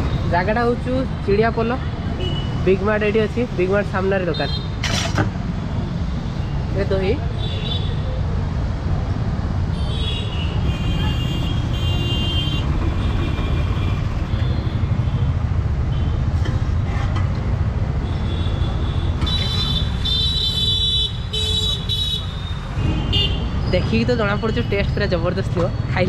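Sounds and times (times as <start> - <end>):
passing vehicles rumble: 0.0 - 26.0.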